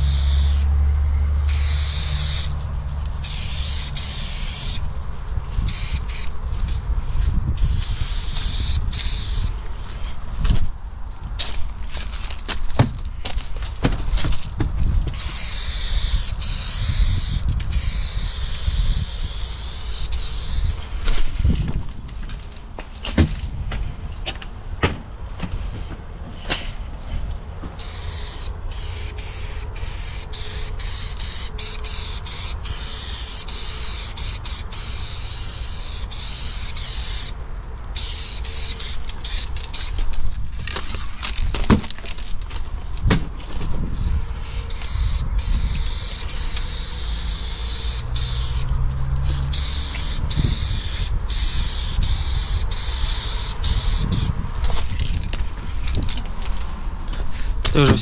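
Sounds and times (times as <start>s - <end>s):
spray paint can hissing: 0.0s - 6.7s, 7.6s - 10.0s, 15.1s - 21.6s, 27.8s - 40.1s, 44.0s - 57.9s.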